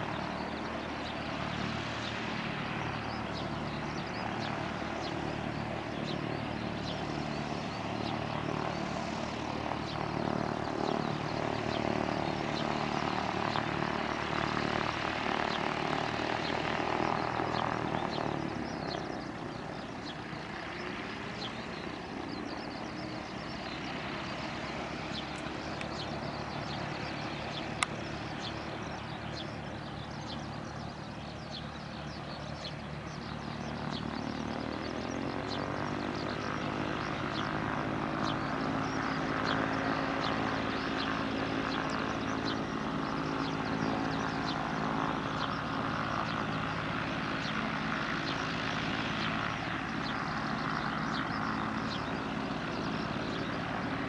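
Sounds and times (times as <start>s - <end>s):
small plane engine and propeller: 0.0s - 54.0s.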